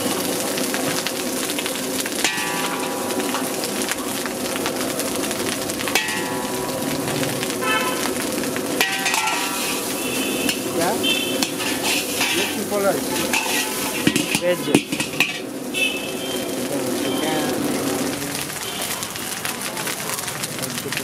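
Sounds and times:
rice sizzling: 0:00.0 - 0:21.0
metal ladle clanking on wok: 0:02.2 - 0:03.6, 0:05.9 - 0:06.8, 0:08.8 - 0:15.6
ladle scraping rice in wok: 0:08.8 - 0:15.5.

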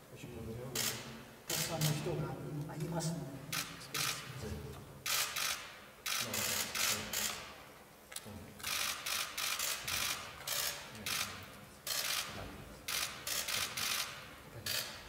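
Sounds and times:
camera shutters clicking in bursts: 0:00.8 - 0:02.1, 0:03.5 - 0:04.3, 0:05.0 - 0:07.6, 0:08.6 - 0:15.0.

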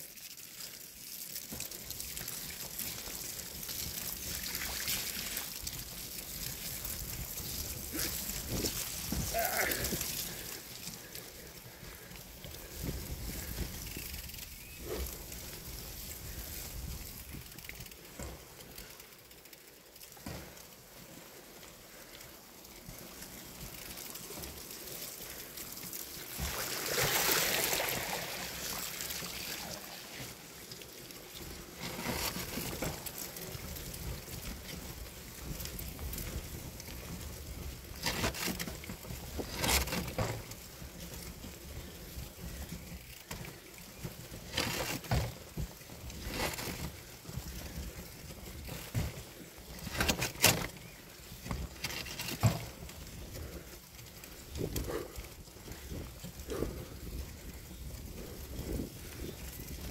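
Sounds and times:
bicycle tyres on dirt track: 0:00.0 - 0:59.9
bicycle knocks and rattles: 0:15.6 - 0:19.2, 0:31.8 - 0:53.6.

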